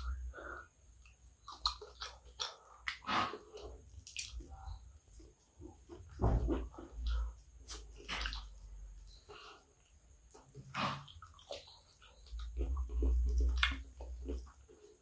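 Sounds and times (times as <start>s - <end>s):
fingers squelching in food: 1.0s - 4.8s
dull handling bumps: 6.0s - 6.9s.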